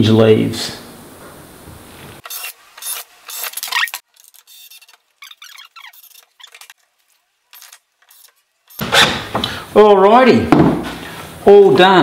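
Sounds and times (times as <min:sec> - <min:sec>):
squeaks and scrapes: 0:02.0 - 0:09.3.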